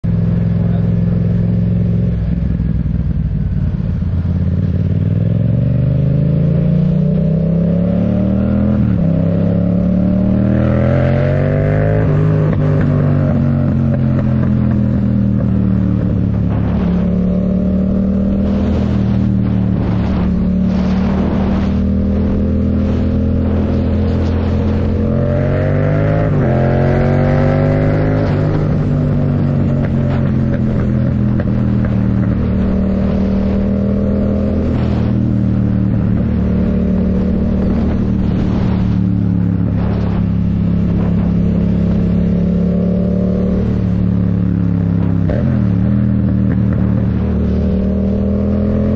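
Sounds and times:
motorcycle engine revving: 0.0s - 48.9s.

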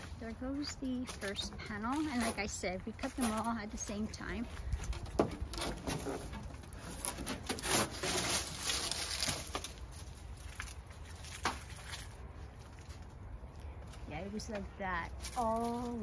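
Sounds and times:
plastic panel rustling and scraping: 1.1s - 12.2s.

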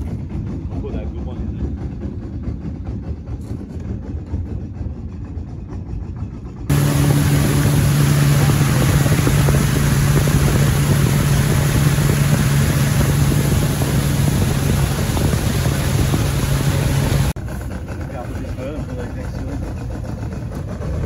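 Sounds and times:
boat engine humming: 0.0s - 21.0s
wind and water rushing: 6.7s - 17.4s.

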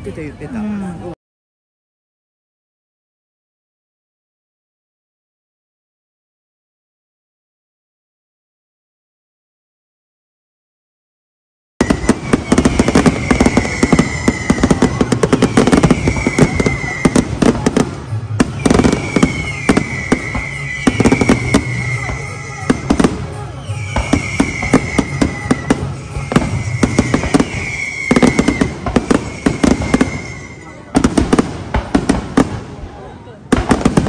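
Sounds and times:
fireworks bangs and crackling: 11.8s - 34.0s.

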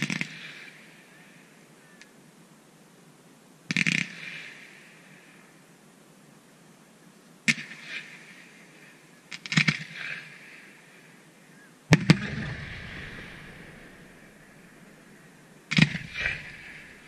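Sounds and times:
firework cracks and pops: 9.4s - 10.2s, 11.9s - 17.0s
firework shells bursting: 11.9s - 17.0s.

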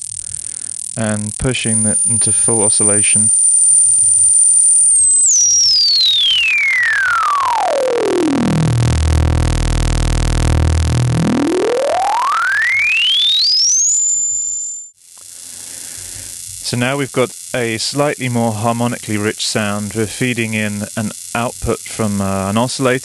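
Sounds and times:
buzzing square wave: 0.0s - 23.0s
synthesizer filter tone sweeping: 5.0s - 14.6s.

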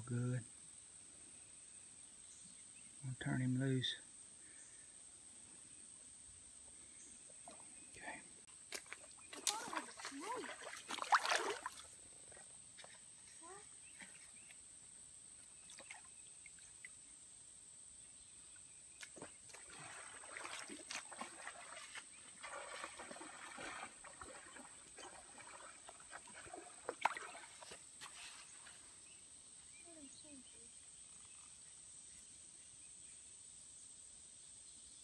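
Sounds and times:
rustling and scraping: 27.6s - 28.9s.

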